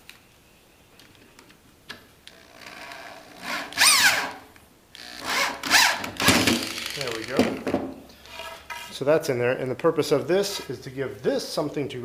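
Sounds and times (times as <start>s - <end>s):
cordless drill driving bolt into wood: 2.6s - 4.4s, 5.0s - 7.0s.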